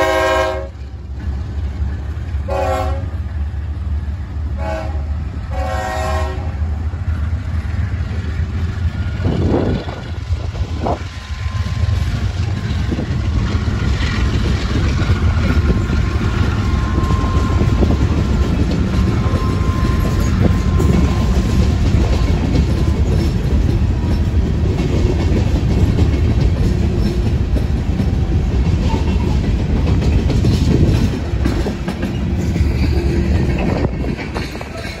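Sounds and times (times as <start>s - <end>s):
locomotive horn blasts: 0.0s - 0.8s, 2.4s - 3.2s, 4.6s - 6.7s, 19.2s - 21.5s
locomotives rumbling past: 0.0s - 35.0s
train cars rolling clatter: 0.0s - 35.0s.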